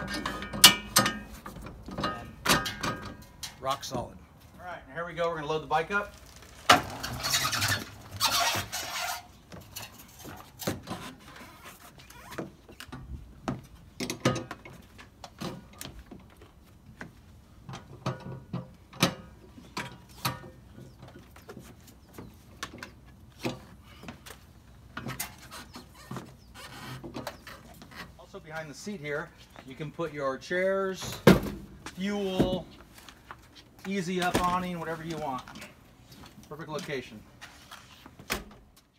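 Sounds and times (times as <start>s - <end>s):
dirt bike clattering up ramp: 6.1s - 8.8s
tie-down straps ratcheting: 6.1s - 13.0s.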